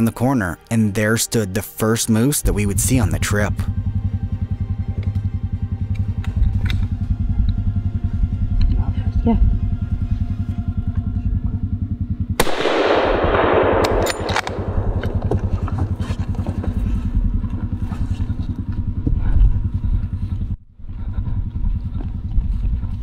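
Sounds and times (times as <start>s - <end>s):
low pulsing rumble: 1.8s - 23.0s
rifle shot echoing: 12.4s - 16.0s.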